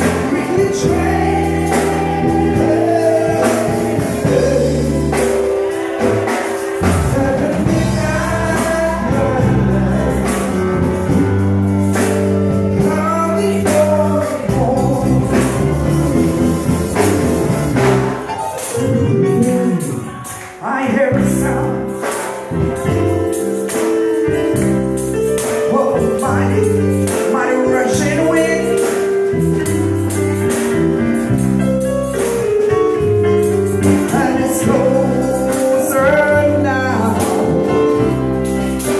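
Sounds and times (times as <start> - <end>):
voices singing: 0.0 - 11.2
keyboard sustained chords: 0.0 - 38.9.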